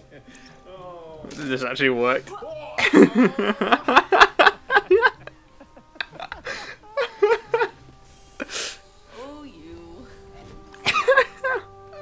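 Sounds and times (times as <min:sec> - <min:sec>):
faint music tones: 0:00.0 - 0:12.0
man laughing: 0:02.8 - 0:07.8, 0:10.8 - 0:11.7
breathy exhale: 0:08.4 - 0:08.9.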